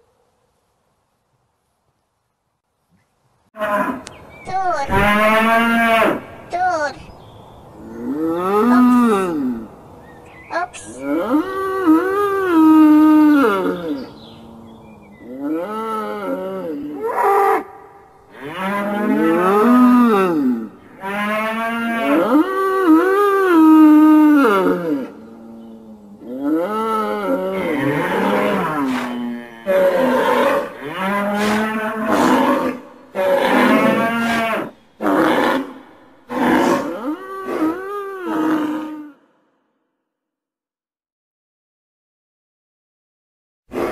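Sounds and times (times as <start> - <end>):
cattle mooing: 3.6 - 6.4, 18.3 - 39.2.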